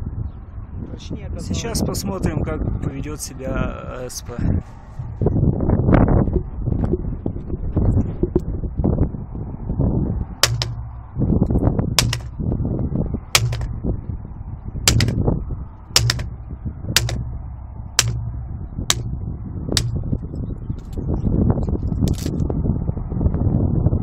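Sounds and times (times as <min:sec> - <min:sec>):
sticks breaking: 0:10.4 - 0:10.9, 0:12.0 - 0:12.3, 0:13.4 - 0:13.8, 0:14.9 - 0:15.2, 0:16.0 - 0:16.4, 0:17.0 - 0:17.4, 0:18.0 - 0:19.2, 0:19.8 - 0:20.1, 0:22.1 - 0:22.4
baton striking wooden sticks: 0:10.4 - 0:11.0, 0:12.0 - 0:12.4, 0:13.3 - 0:13.8, 0:14.9 - 0:15.3, 0:16.0 - 0:16.4, 0:17.0 - 0:20.2.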